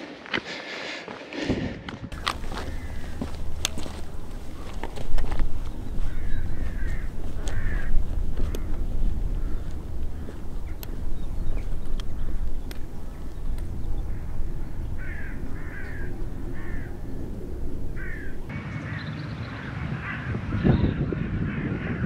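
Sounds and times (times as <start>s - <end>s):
wind buffeting microphone: 1.4s - 22.0s
crow cawing: 2.2s - 4.8s, 5.6s - 19.0s.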